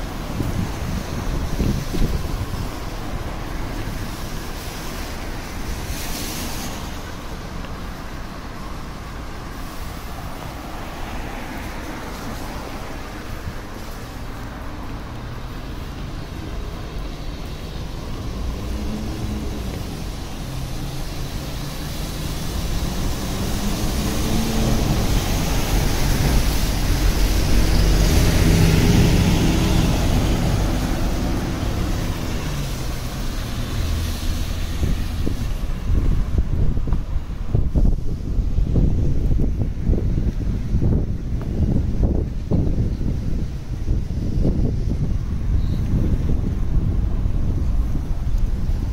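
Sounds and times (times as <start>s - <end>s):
vehicle passing by: 9.9s - 36.8s.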